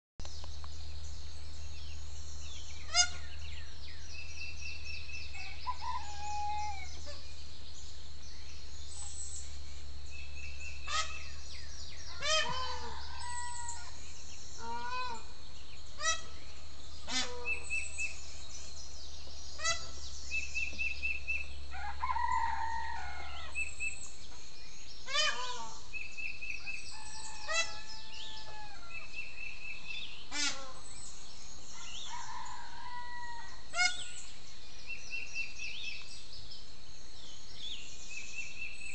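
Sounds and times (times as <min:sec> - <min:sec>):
songbirds chirping and trilling: 0:00.2 - 0:38.9
peacock calling: 0:02.6 - 0:03.8, 0:04.7 - 0:07.4, 0:10.4 - 0:18.6, 0:19.5 - 0:24.2, 0:25.0 - 0:34.4
roosters crowing: 0:12.1 - 0:14.0, 0:21.6 - 0:23.7, 0:26.8 - 0:29.1, 0:31.7 - 0:34.0.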